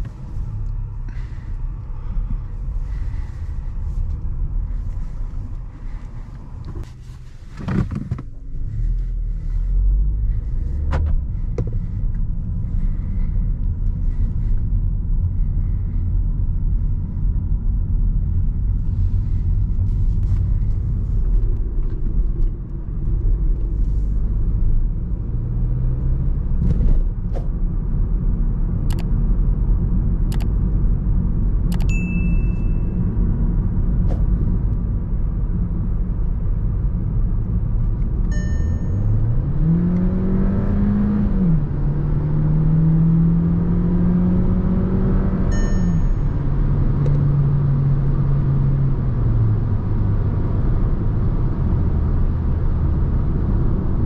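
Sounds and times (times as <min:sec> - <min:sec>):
road and tyre rumble: 0:00.0 - 0:54.0
car engine accelerating: 0:32.6 - 0:54.0.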